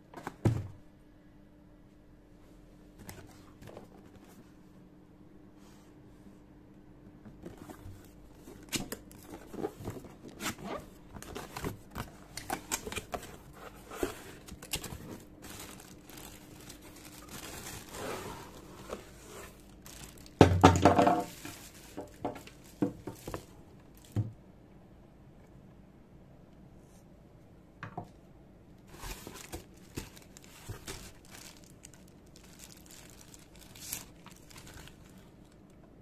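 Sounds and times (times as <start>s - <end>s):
cardboard box rustling: 7.5s - 20.3s, 28.9s - 31.7s
plastic bags crinkling: 8.5s - 24.2s, 28.9s - 35.8s
plastic bag ripping: 14.5s - 18.8s, 19.5s - 20.4s, 29.0s - 35.6s.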